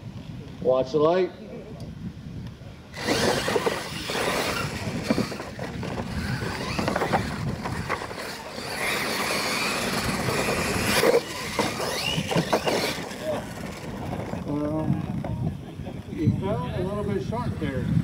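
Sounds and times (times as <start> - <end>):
electric toy truck motors whining: 2.9 - 14.5
trucks knocking on landing: 3.0 - 14.4
tyres scrabbling on dirt: 3.0 - 15.3.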